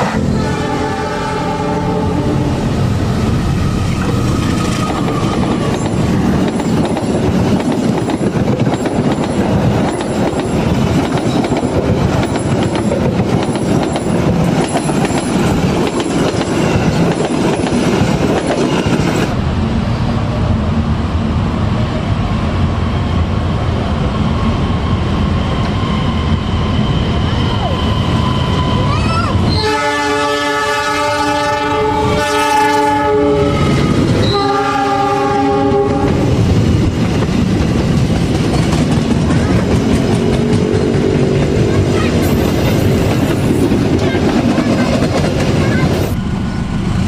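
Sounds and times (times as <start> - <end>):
diesel locomotive approaching: 0.0 - 47.0
passenger train passing at speed: 0.0 - 47.0
wheels clacking over rail joints: 3.9 - 19.3.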